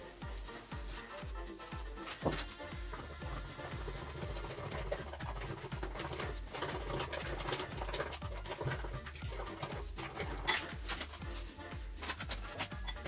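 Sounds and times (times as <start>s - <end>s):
background music with beat: 0.0s - 13.0s.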